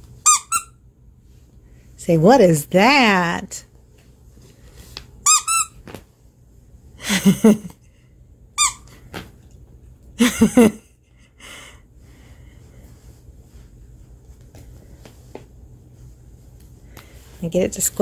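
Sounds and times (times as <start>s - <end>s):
dog toy squeaking: 0.2s - 0.8s, 5.2s - 5.8s, 8.6s - 8.9s.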